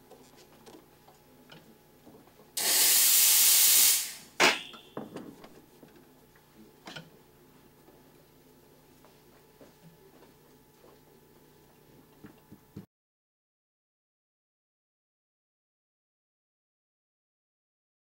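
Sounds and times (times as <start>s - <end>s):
steam hissing from wand: 2.6s - 4.4s.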